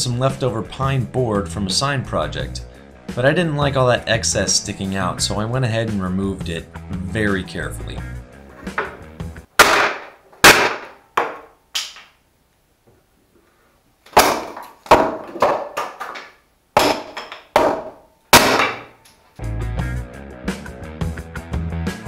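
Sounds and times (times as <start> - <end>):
wooden board banging and cracking: 8.6 - 12.1, 14.1 - 19.0.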